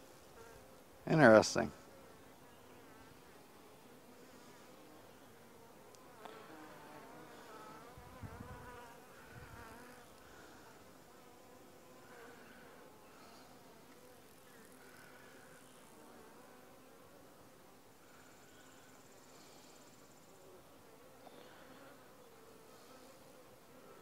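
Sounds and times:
bees buzzing: 0.0s - 24.0s.

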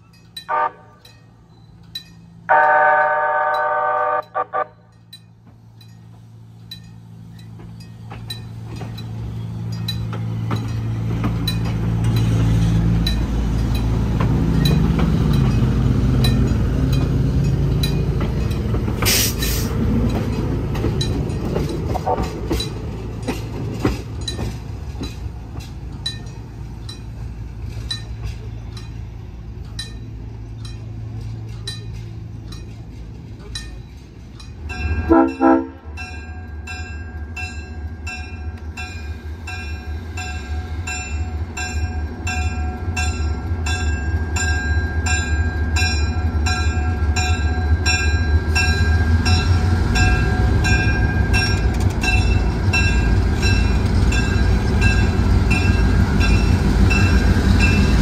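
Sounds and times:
light rail car passing: 0.0s - 58.0s
wheel-on-rail rumble: 0.0s - 58.0s.

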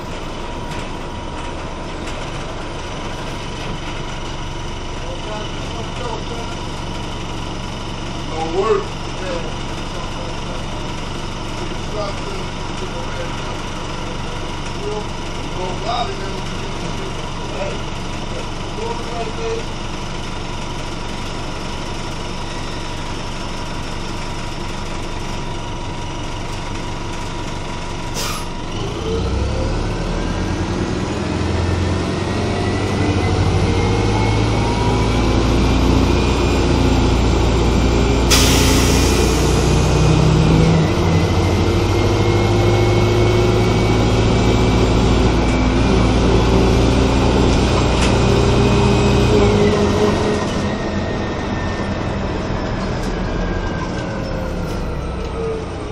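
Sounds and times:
bus engine and drivetrain whine: 0.0s - 55.9s
loud hiss of air: 28.2s - 28.5s, 38.3s - 39.8s.

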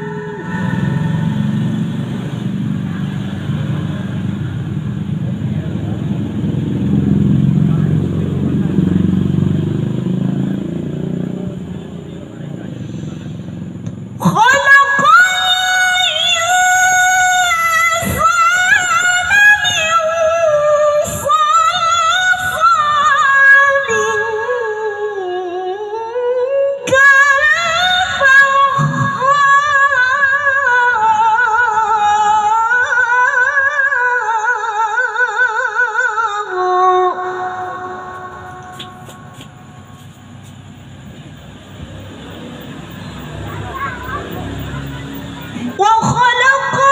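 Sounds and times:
woman reciting melodically into microphone: 14.2s - 39.9s, 43.4s - 46.9s.

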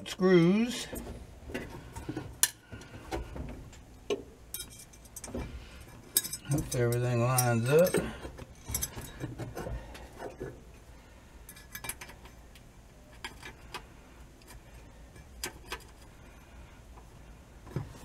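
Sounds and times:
metal tools clinking: 4.5s - 5.3s, 6.0s - 9.3s.

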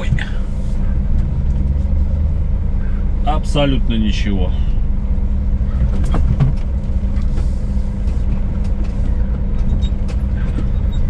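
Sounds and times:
truck engine running: 0.0s - 11.0s
knocks and rattles: 5.7s - 7.3s, 8.1s - 11.0s.

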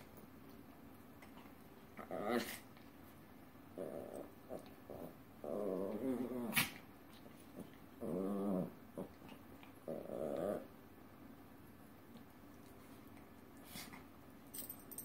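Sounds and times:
dogs growling: 2.0s - 2.7s, 3.7s - 10.8s.

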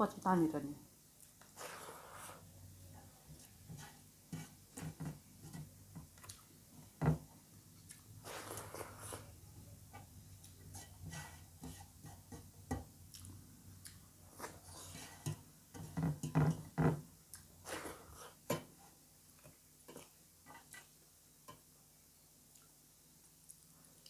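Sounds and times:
fingers mixing rice on metal plate: 3.3s - 6.1s.

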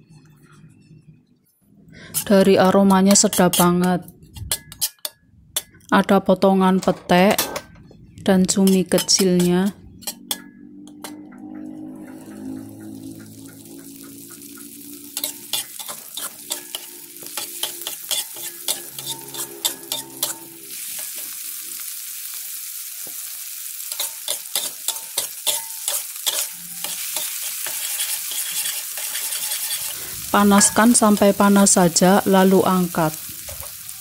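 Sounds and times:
metal spatula scraping wok: 2.0s - 5.9s, 8.4s - 21.8s, 23.8s - 34.0s
food sizzling in a wok: 11.0s - 34.0s.

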